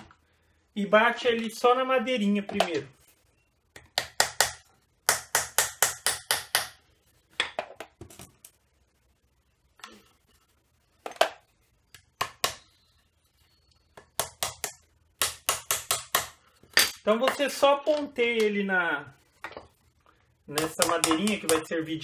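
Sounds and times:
hammer tapping nails into wood: 3.8 - 6.8, 14.1 - 16.4, 20.6 - 21.7.

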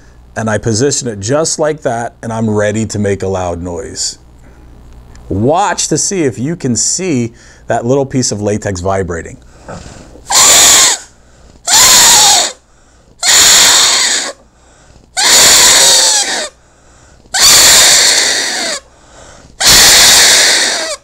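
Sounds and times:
latex glove whistle squealing: 10.3 - 11.1, 11.7 - 12.6, 13.2 - 14.4, 15.2 - 16.6, 17.4 - 18.9, 19.6 - 21.0.

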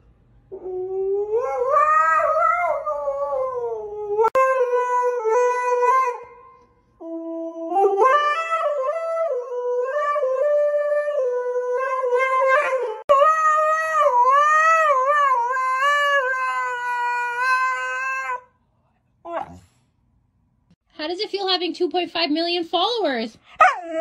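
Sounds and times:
dog howling: 0.5 - 6.4, 7.0 - 18.5, 19.3 - 19.7.

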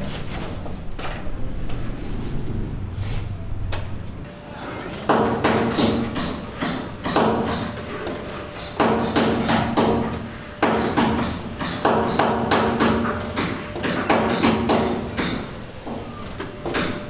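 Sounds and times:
ringing hammer blows: 5.1 - 17.0.

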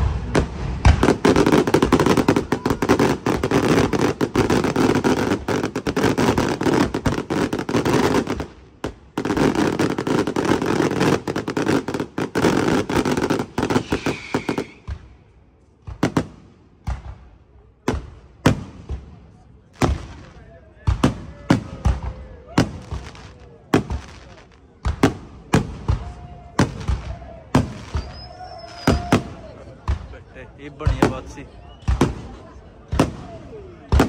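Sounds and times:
fireworks bangs crackling: 0.0 - 34.0.

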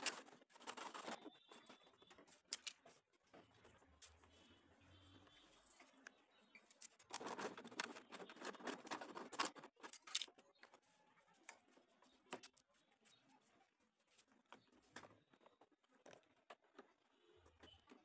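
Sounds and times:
plastic scraping and clicking: 0.0 - 4.2, 5.8 - 10.8.

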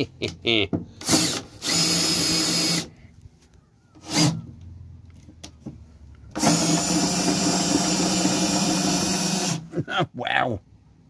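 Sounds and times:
cordless drill running: 1.0 - 3.0, 4.0 - 4.5, 6.3 - 9.7.

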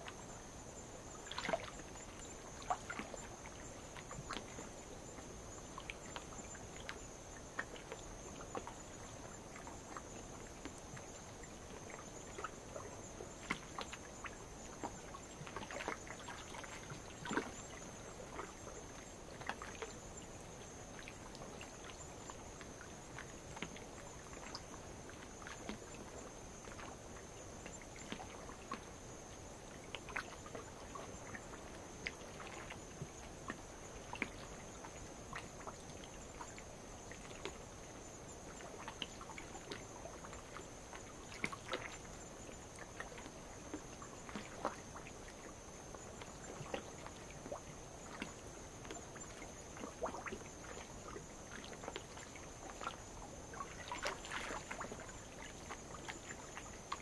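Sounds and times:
night insects trilling: 0.0 - 57.0
waves lapping against rock: 42.6 - 57.0
water splashing and dripping: 53.6 - 56.7.

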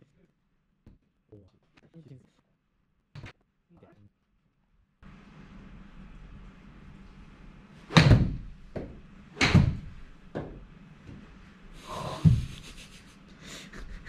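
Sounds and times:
golf club striking ball: 7.9 - 10.6
ball knocking on screen: 7.9 - 11.2.

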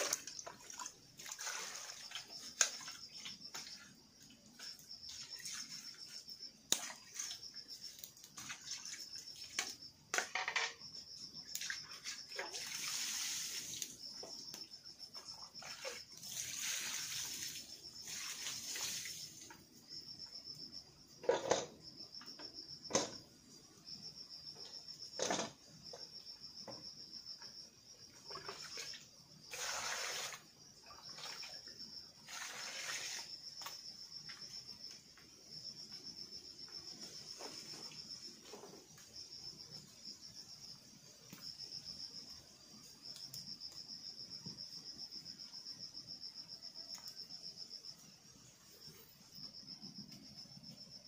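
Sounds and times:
water pouring into a pot: 0.0 - 3.0, 11.8 - 14.0, 15.6 - 19.6, 28.2 - 31.6, 32.2 - 33.3
high pulsing insect trill: 1.0 - 51.0.

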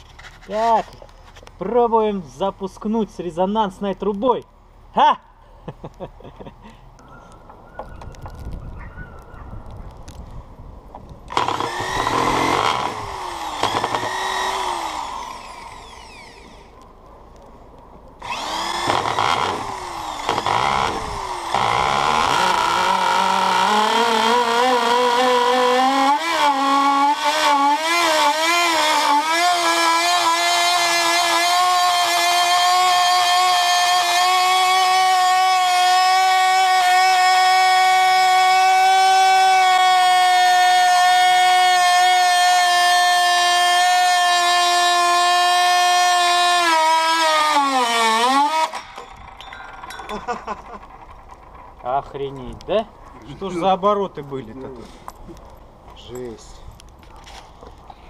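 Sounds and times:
electric drill starter spinning: 11.3 - 16.8, 18.2 - 52.2
high-pitched micro engine screaming: 18.2 - 49.1.

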